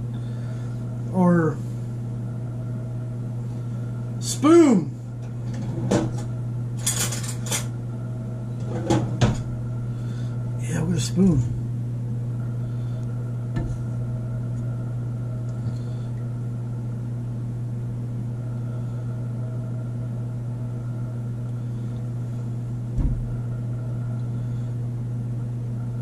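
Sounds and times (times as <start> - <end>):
appliance electrical hum: 0.0 - 26.0
loud thump: 23.0 - 23.3.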